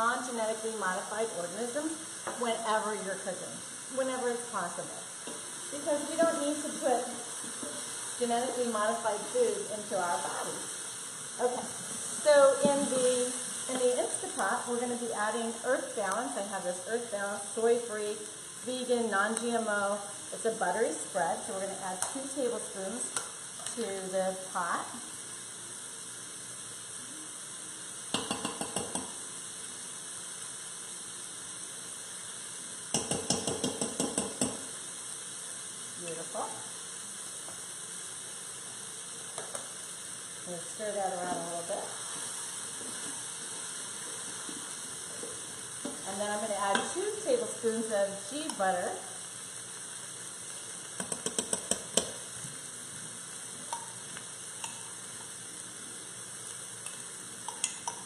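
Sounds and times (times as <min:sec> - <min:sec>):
sizzling pot: 0:00.0 - 0:58.0
spoon tapping against a pot: 0:28.1 - 0:29.2, 0:32.9 - 0:34.6, 0:51.0 - 0:52.2, 0:53.7 - 0:54.0, 0:54.6 - 0:54.9, 0:56.8 - 0:58.0.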